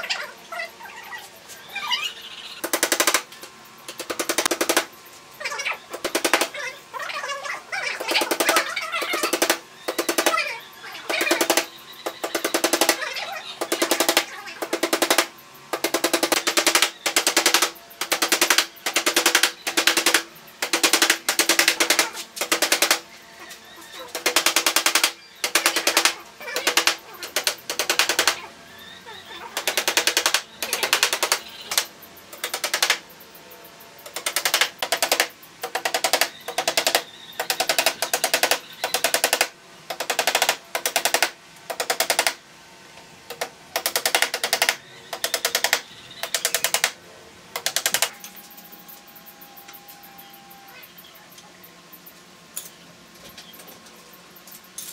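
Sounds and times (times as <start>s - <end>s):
hammer rapidly tapping nails: 2.6s - 3.3s, 3.9s - 4.9s, 6.0s - 6.5s, 8.0s - 10.4s, 11.1s - 13.0s, 13.6s - 23.0s, 24.1s - 28.4s, 29.6s - 33.0s, 34.1s - 42.4s, 43.3s - 47.0s, 47.6s - 48.1s.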